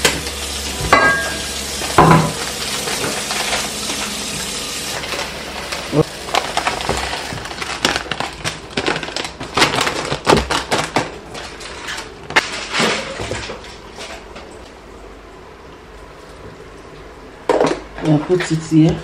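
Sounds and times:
plastic bags crackling: 0:02.4 - 0:12.8.

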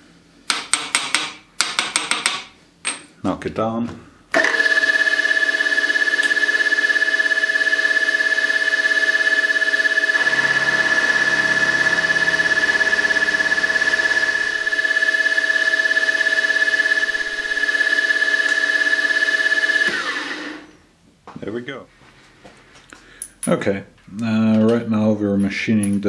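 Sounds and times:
milling spindle high-pitched whine: 0:04.4 - 0:20.7.

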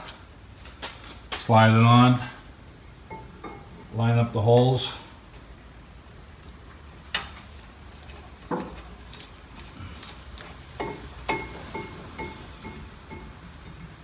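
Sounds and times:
light metallic pings: 0:10.8 - 0:13.9.

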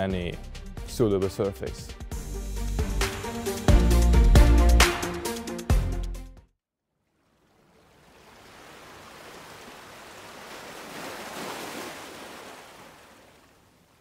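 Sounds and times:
ocean surf rushing: 0:07.7 - 0:14.0.

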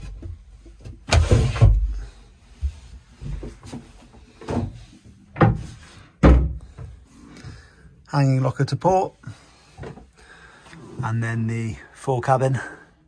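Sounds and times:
light wooden knocks and bumps: 0:00.0 - 0:07.0.

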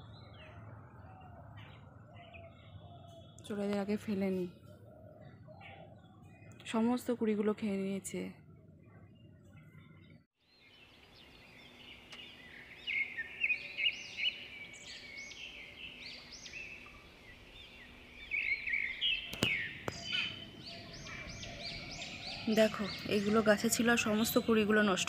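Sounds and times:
birds chirping: 0:00.0 - 0:25.0
sharp clicks: 0:19.3 - 0:20.0.

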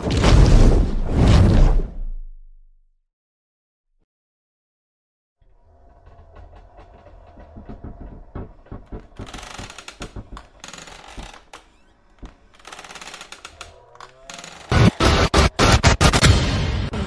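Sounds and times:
irregular clicks and knocks: 0:05.9 - 0:15.0
sudden loud burst: 0:14.8 - 0:17.0.

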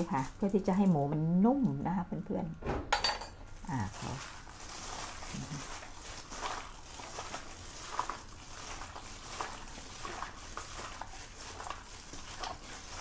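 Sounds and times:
plastic glove crinkles: 0:00.0 - 0:01.0, 0:03.5 - 0:13.0
wet squishes of meat: 0:03.8 - 0:13.0.

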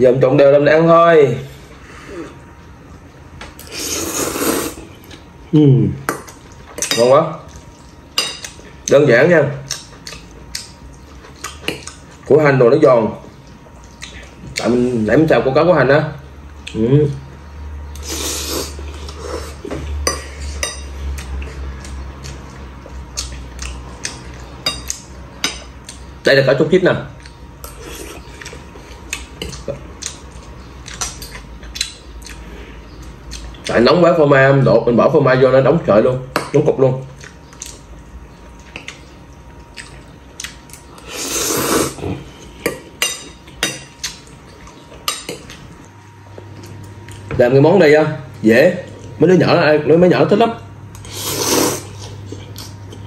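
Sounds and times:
slurping spaghetti: 0:03.6 - 0:04.9, 0:18.0 - 0:19.6, 0:41.0 - 0:42.3, 0:51.0 - 0:52.2.

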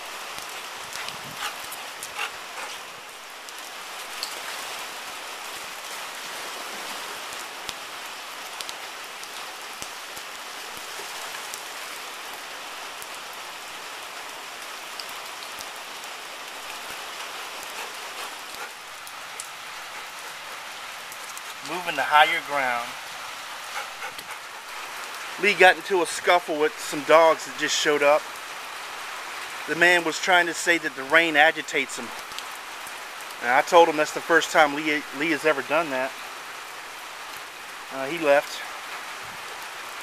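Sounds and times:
rain drop ticks: 0:00.0 - 0:04.6, 0:07.2 - 0:12.4, 0:14.6 - 0:22.6, 0:23.7 - 0:28.4, 0:29.4 - 0:36.2
steady rain hiss: 0:00.0 - 0:40.0.

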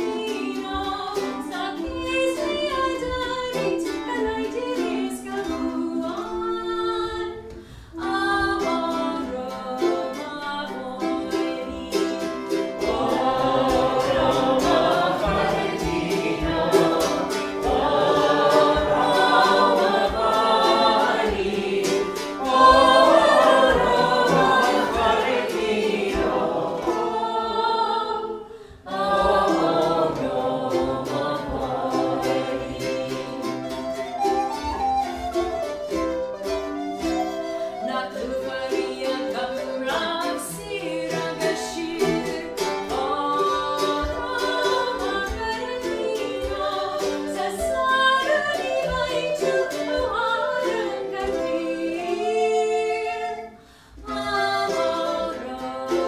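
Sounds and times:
strummed mandolin: 0:00.0 - 0:56.0
woman singing folk song: 0:00.0 - 0:56.0
wooden whistle: 0:32.0 - 0:40.4, 0:46.8 - 0:53.8.

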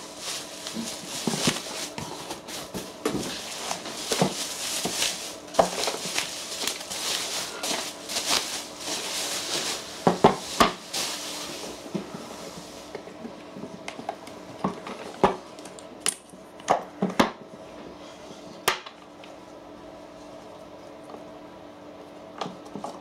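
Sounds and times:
bubble wrap rustling and crinkling: 0:00.0 - 0:12.9.

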